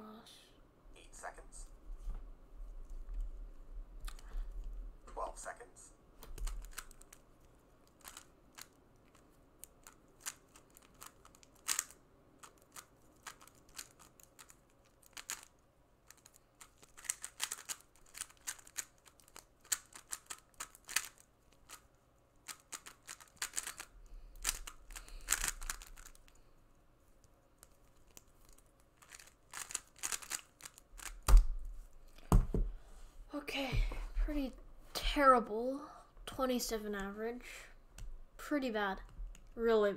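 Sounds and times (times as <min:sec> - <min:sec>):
plastic cube clicking: 0:06.2 - 0:07.2, 0:07.9 - 0:21.8, 0:22.4 - 0:26.3, 0:27.6 - 0:31.5.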